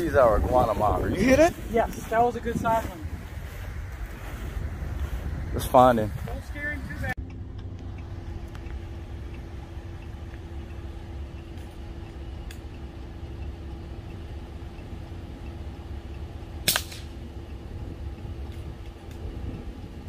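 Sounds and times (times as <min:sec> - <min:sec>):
vehicle engine idling: 0:00.0 - 0:20.0
air rifle shot: 0:16.7 - 0:17.2.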